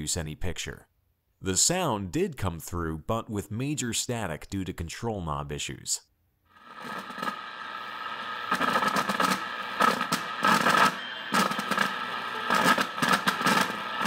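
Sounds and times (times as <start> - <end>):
speaker static and crackle: 6.5 - 14.0.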